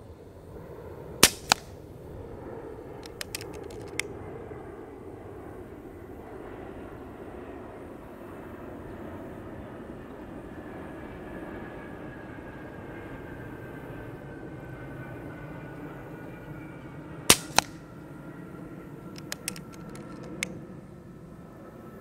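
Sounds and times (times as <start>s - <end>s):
outdoor background drone: 0.0s - 22.0s
air rifle action clicks: 1.2s - 1.8s, 3.0s - 4.1s, 17.3s - 17.8s, 19.1s - 20.6s.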